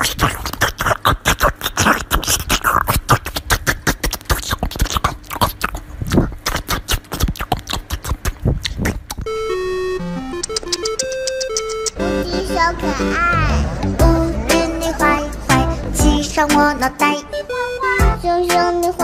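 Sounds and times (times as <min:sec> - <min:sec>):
dog chewing watermelon: 0:00.0 - 0:09.3.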